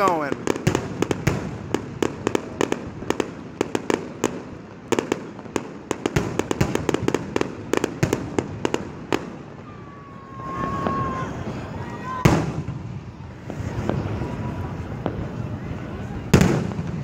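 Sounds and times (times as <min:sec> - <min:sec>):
fireworks cracking and popping: 0:00.0 - 0:17.0
deep firework thuds: 0:12.2 - 0:15.5, 0:16.2 - 0:17.0.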